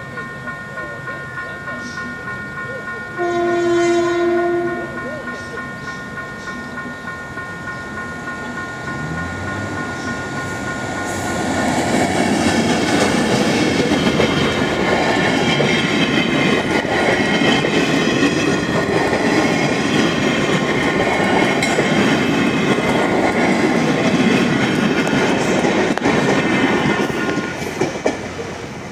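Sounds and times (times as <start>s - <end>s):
diesel locomotive engine: 0.0s - 28.9s
train wheels clattering over rails: 7.8s - 28.5s.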